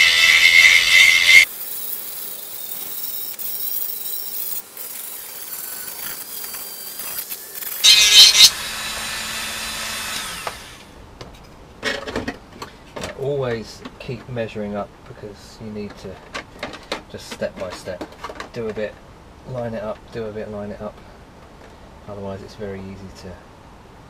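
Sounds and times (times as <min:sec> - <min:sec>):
rotary tool whining: 0:00.0 - 0:10.9.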